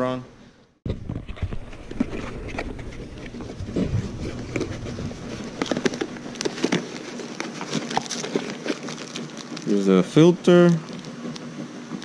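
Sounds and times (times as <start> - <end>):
cardboard box being opened: 1.0 - 9.8.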